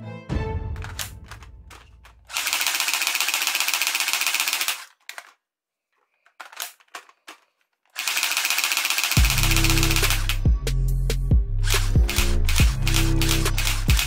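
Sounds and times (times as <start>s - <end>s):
toy rifle firing full auto: 0.8s - 5.4s, 6.4s - 10.4s, 11.6s - 14.0s
short clicks: 11.7s - 14.0s.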